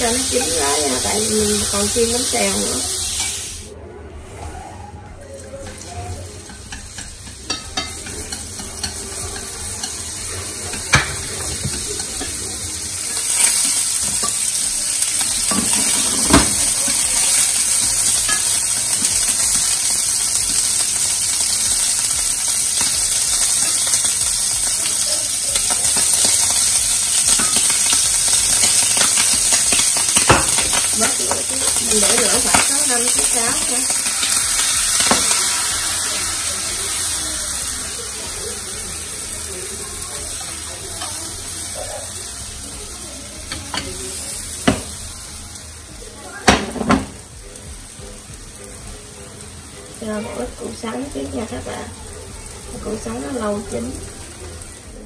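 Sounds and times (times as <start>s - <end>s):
food sizzling in hot oil: 0.0s - 3.8s, 5.4s - 55.0s
utensil tapping pan: 6.4s - 10.0s, 10.6s - 12.4s.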